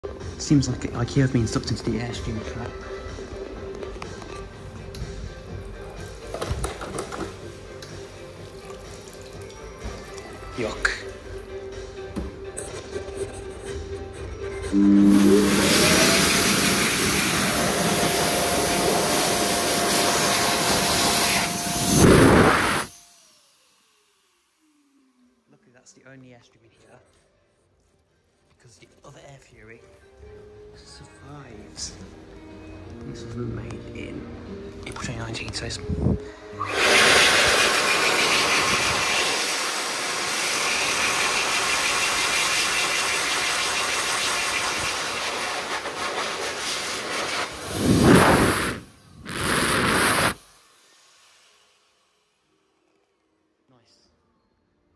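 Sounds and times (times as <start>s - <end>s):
hand dryer air rush: 14.0s - 25.0s, 36.5s - 52.7s
hand dryer motor whine: 14.0s - 25.5s, 36.1s - 53.0s.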